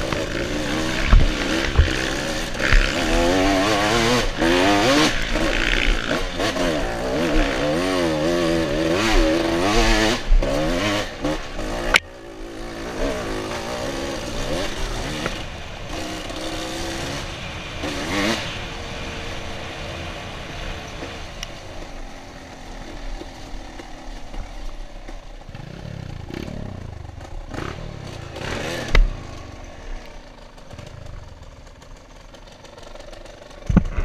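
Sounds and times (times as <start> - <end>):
bike rattling over rough ground: 0.0 - 34.0
dirt bike engine revving: 0.0 - 34.0.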